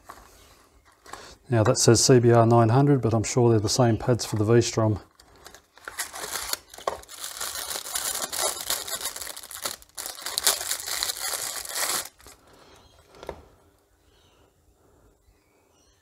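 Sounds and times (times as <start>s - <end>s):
plastic and card crinkling: 4.0s - 12.4s.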